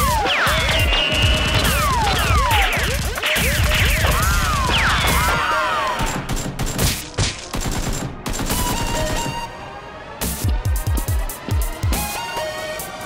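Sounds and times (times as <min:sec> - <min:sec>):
automatic gunfire: 0:00.0 - 0:09.3.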